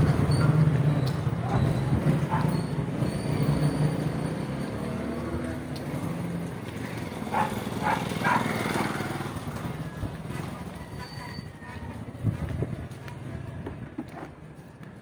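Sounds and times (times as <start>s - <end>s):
motorcycle engine passing: 3.0s - 10.8s.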